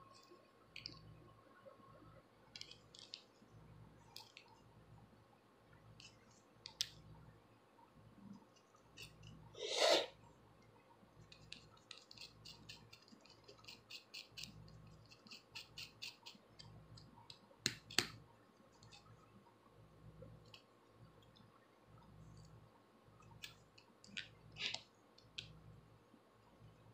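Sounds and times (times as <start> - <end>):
brief loud scrape: 9.6 - 10.1
comb and fingernails scratching scalp: 11.4 - 16.4.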